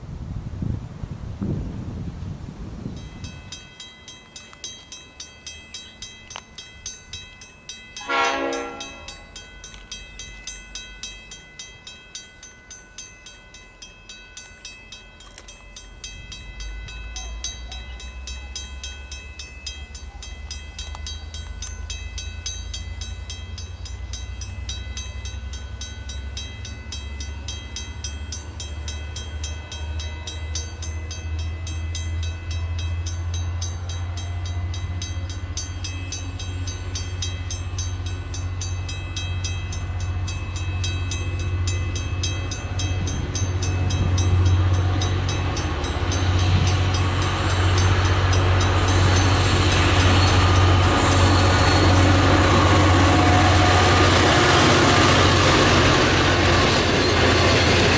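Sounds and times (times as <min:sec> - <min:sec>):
train rumbling: 0:00.0 - 0:57.9
railway warning bell ringing: 0:02.9 - 0:57.9
train horn: 0:08.0 - 0:09.3, 0:46.3 - 0:56.5.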